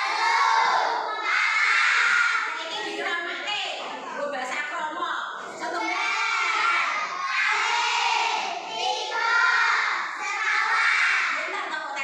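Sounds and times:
children shouting in unison: 0:00.0 - 0:02.6, 0:05.8 - 0:11.4.

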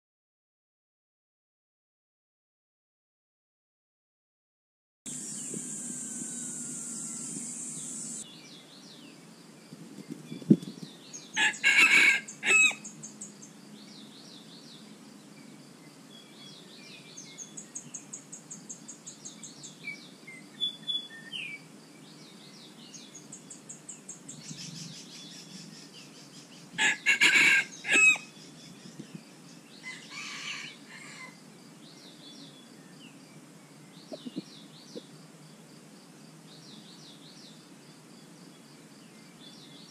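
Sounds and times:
rooster crowing: 0:05.1 - 0:08.2, 0:11.4 - 0:12.9, 0:26.8 - 0:28.3, 0:29.8 - 0:31.4
insects chirping: 0:05.1 - 0:39.9.

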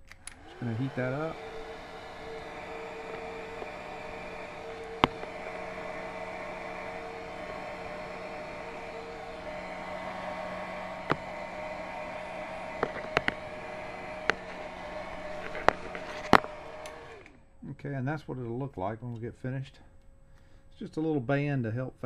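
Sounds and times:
sharp handling clicks: 0:00.0 - 0:05.4
heat gun blowing hot air: 0:00.0 - 0:17.3.

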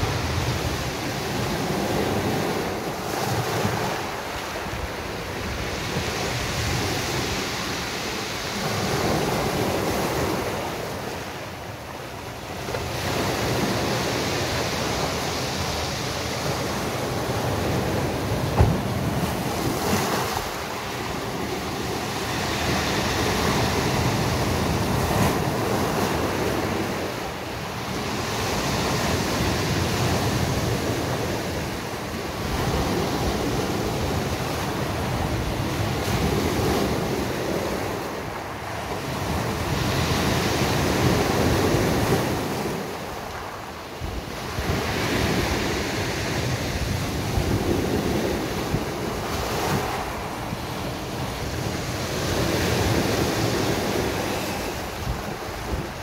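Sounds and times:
sea waves breaking on beach: 0:00.0 - 0:56.0
short thump: 0:18.6 - 0:18.9.

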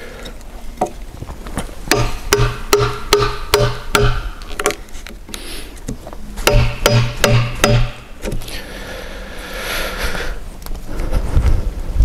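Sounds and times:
mallet striking chisel into wood: 0:01.9 - 0:04.8, 0:06.4 - 0:08.4.

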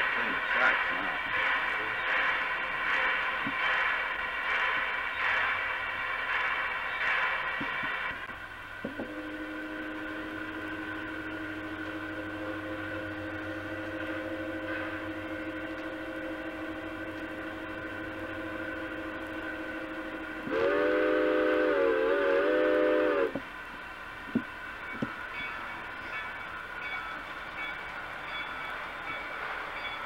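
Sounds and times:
steady one-note drone: 0:09.0 - 0:20.8
train whistle chord: 0:09.0 - 0:23.4.

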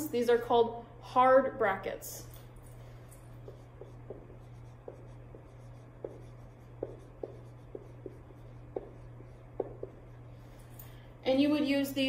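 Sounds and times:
marker squeaking on whiteboard: 0:03.4 - 0:10.3.

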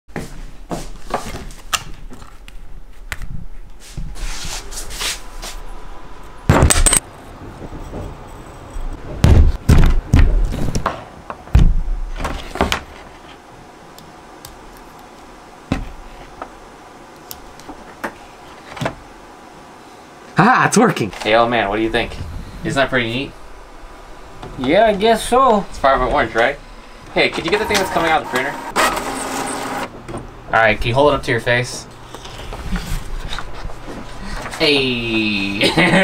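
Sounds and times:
loud knocks: 0:09.1 - 0:12.9.

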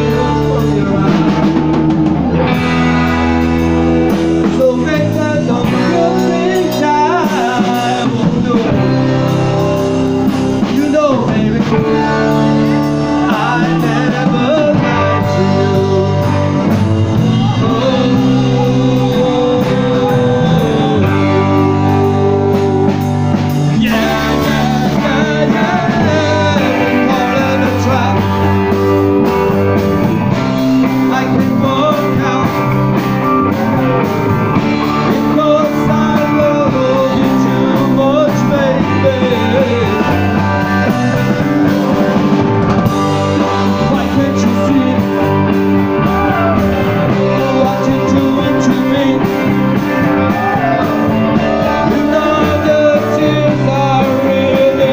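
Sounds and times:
man singing: 0:00.0 - 0:54.9
rock band playing: 0:00.0 - 0:54.9.

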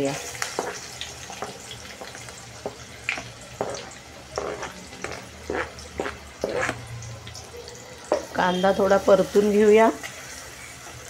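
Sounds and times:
oil crackles and pops: 0:00.0 - 0:08.5
onions frying in hot oil: 0:00.0 - 0:11.0.

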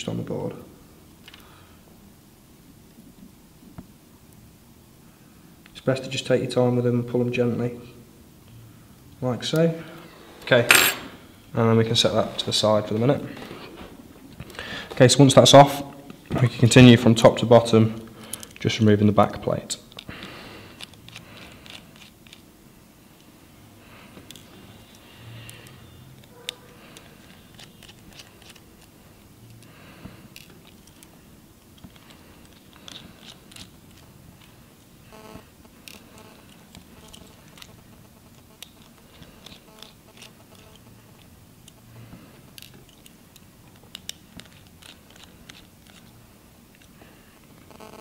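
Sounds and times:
brief ring: 0:10.7 - 0:11.2
small parts being handled: 0:18.3 - 0:18.7, 0:20.8 - 0:22.5, 0:24.2 - 0:29.7, 0:30.3 - 0:34.9, 0:35.8 - 0:41.8, 0:42.4 - 0:47.0.

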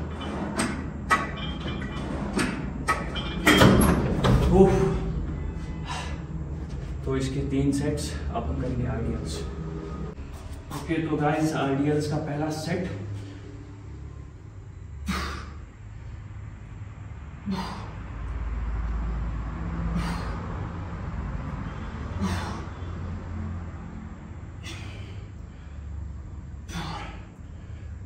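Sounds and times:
low steady rumble: 0:00.0 - 0:28.0
man breathing hard: 0:05.7 - 0:06.6, 0:15.0 - 0:16.1, 0:17.4 - 0:18.3, 0:19.6 - 0:28.0.

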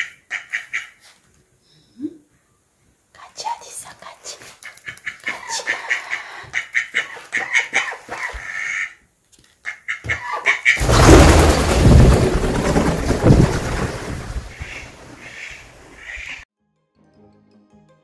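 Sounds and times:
ducks calling: 0:04.6 - 0:09.0, 0:14.4 - 0:16.4
wings flapping: 0:10.7 - 0:16.4.

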